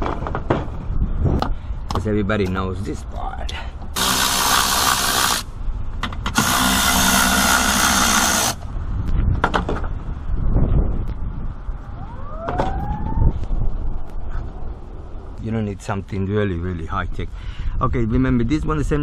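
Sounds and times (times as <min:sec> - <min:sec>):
power tool motor whine: 0:04.0 - 0:05.5, 0:06.4 - 0:08.6.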